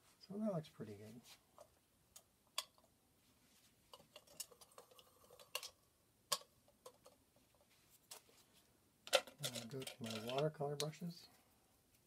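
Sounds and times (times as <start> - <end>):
painting tools clicking and clinking: 9.1 - 10.9.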